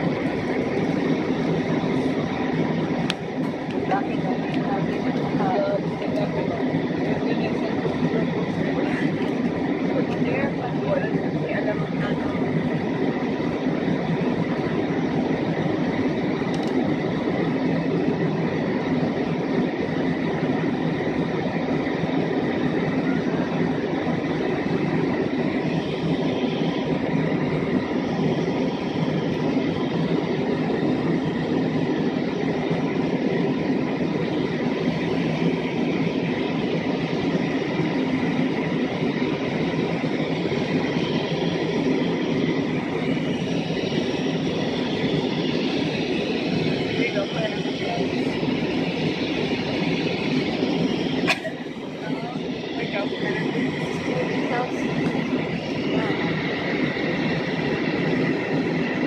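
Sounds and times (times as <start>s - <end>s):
faint steady whine: 0.0s - 59.0s
jet engine drone and rushing air: 0.0s - 59.0s.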